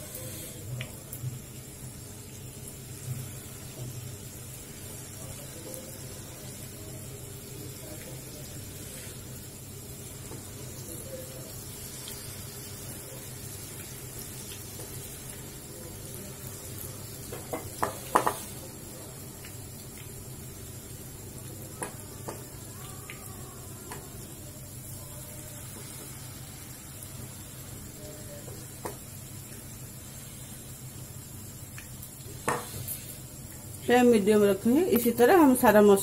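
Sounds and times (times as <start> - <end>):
batter deep-frying in oil: 0.0 - 36.0
oil crackling: 0.7 - 20.7.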